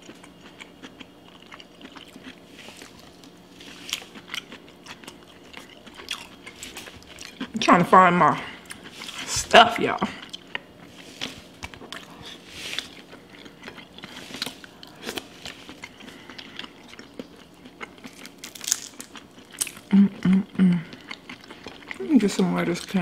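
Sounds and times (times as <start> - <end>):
person humming: 19.9 - 20.9.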